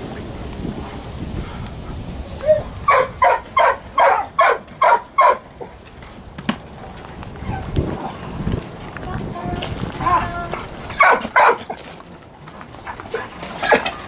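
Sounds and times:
dog barking: 2.9 - 5.7, 10.9 - 11.8.

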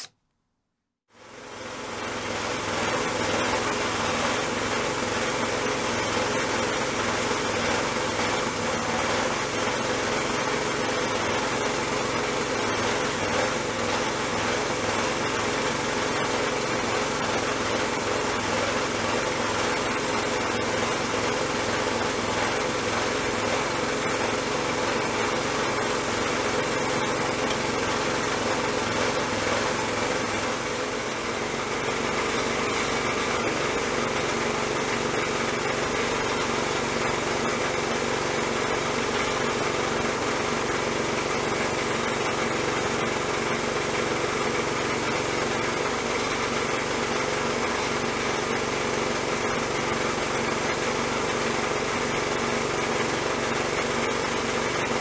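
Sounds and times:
sandblast gun hissing: 1.5 - 40.0.

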